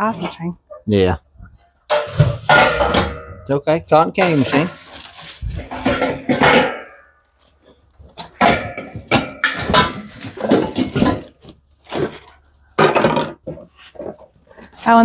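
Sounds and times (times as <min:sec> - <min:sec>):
plastic packaging crinkling: 0:04.3 - 0:06.2.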